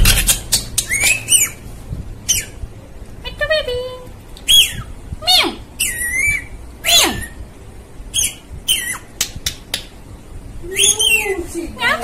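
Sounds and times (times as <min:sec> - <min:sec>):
parakeet squawking and calling: 0:00.0 - 0:02.6, 0:04.4 - 0:09.2, 0:10.7 - 0:11.4.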